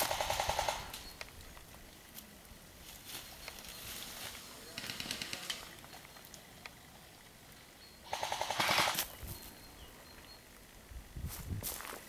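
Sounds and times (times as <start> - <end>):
airsoft rifle full-auto burst: 0.0 - 0.9, 8.1 - 9.0.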